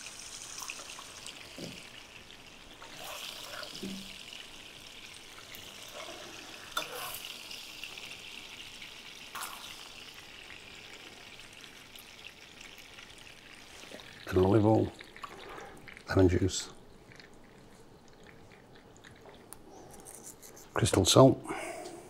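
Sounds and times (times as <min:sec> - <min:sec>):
oil sizzling in frying pan: 0:00.0 - 0:14.3.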